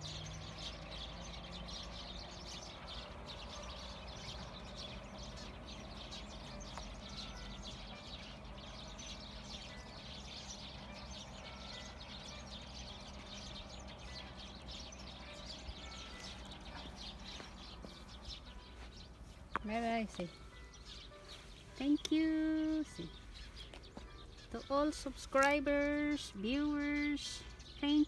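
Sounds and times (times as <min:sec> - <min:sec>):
low steady rumble: 0:00.0 - 0:20.6
small birds chirping: 0:00.0 - 0:28.0.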